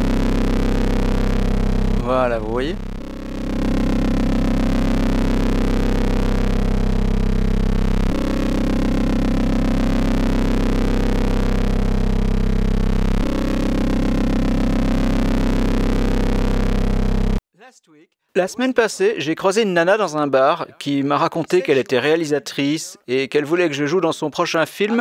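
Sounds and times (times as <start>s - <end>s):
synthesizer drone: 0.0s - 17.4s.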